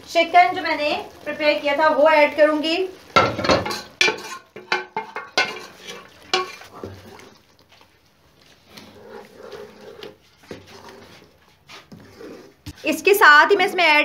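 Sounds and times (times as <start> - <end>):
wooden spoon stirring thick gravy: 2.8 - 14.0
pot and spoon clattering on pan: 3.2 - 6.7.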